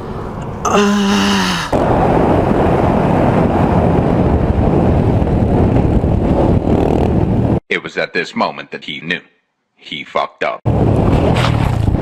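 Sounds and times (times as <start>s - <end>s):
person crying out: 0.7s - 1.8s
wind buffeting helmet camera: 1.8s - 7.6s, 10.7s - 12.0s.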